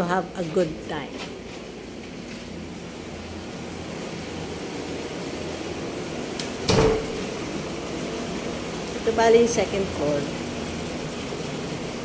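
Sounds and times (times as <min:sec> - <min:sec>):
air conditioning hum: 0:00.0 - 0:12.0.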